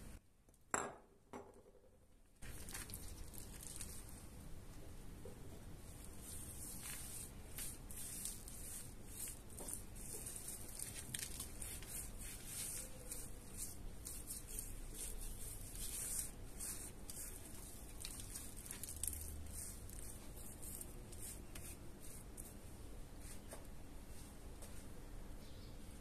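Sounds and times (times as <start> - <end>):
hands rubbing wet meat: 6.0 - 22.5.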